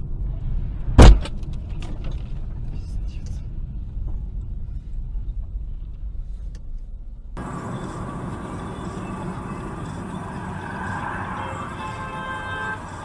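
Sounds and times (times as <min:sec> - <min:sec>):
car road and engine rumble: 0:00.0 - 0:13.0
hissy road noise: 0:07.4 - 0:13.0.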